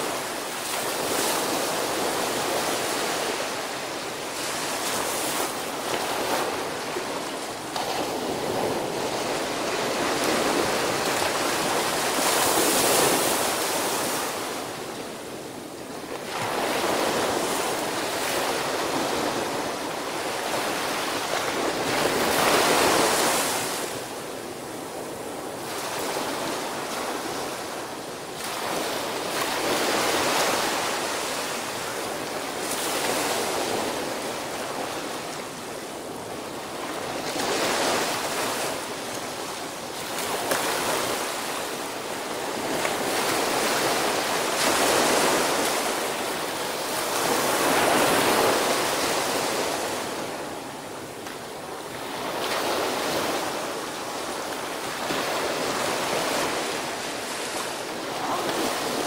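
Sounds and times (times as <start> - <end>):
surf breaking on beach: 36.2 - 59.0.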